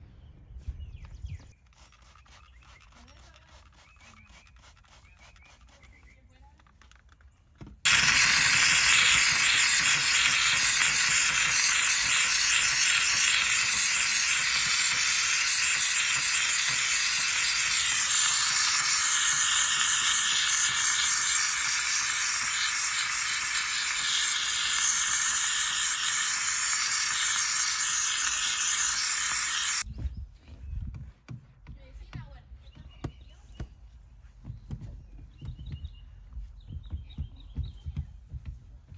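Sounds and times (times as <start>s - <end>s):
pressurised cleaning jet hissing: 7.9s - 29.9s.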